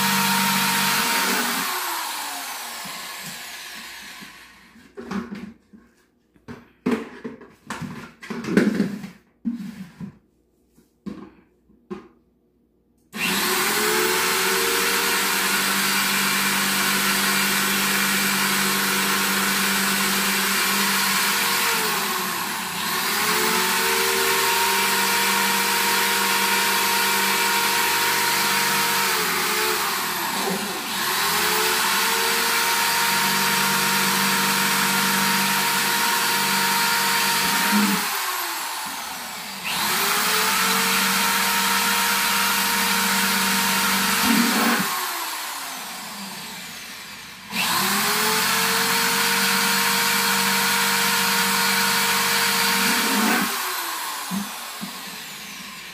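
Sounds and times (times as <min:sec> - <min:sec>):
electric drill boring plastic: 0:00.0 - 0:04.8, 0:13.2 - 0:55.9.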